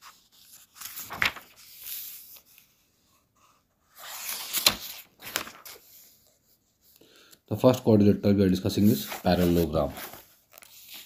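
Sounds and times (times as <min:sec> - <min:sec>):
clothing rustling: 0:08.8 - 0:11.0.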